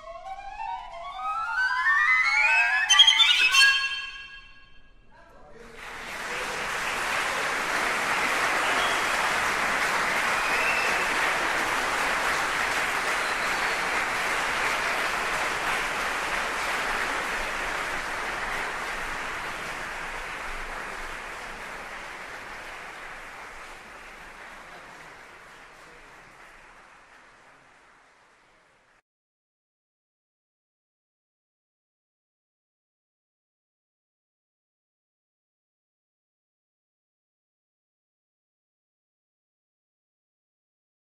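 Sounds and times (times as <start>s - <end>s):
audience applauding: 5.6s - 29.0s.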